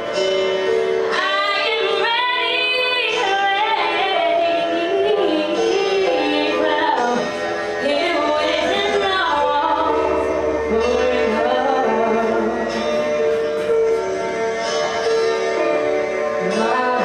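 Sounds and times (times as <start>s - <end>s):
instrumental backing music: 0.0s - 17.0s
woman singing into microphone: 1.1s - 13.0s, 16.4s - 17.0s.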